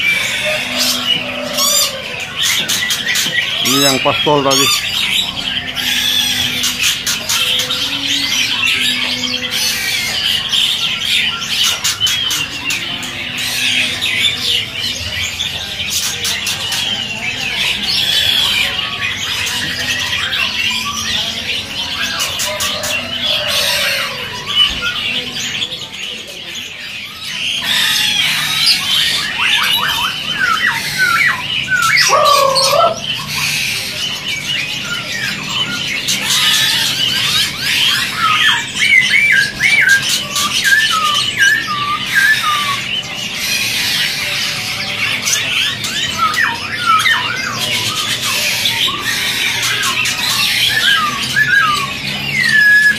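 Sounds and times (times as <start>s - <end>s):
songbirds chirping and chattering: 0.0s - 52.9s
whistled bird phrases: 26.7s - 44.4s, 45.4s - 52.9s.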